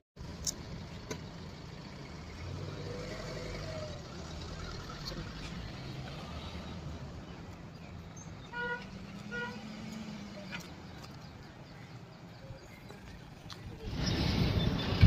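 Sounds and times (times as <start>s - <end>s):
car engine idling: 0.2s - 2.7s.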